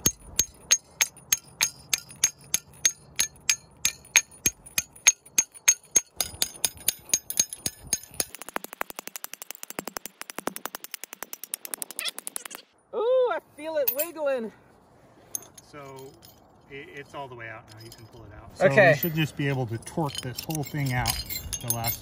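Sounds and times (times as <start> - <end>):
hammer clinking on steel: 0.0 - 9.9, 15.3 - 22.0.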